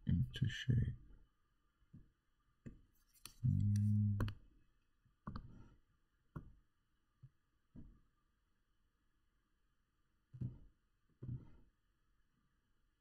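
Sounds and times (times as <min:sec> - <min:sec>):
computer mouse clicks: 0:03.1 - 0:04.3.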